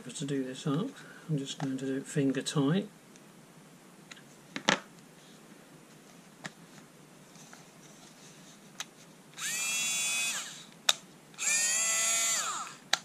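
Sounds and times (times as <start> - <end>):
cordless screwdriver motor whining: 9.4 - 10.7, 11.4 - 13.0.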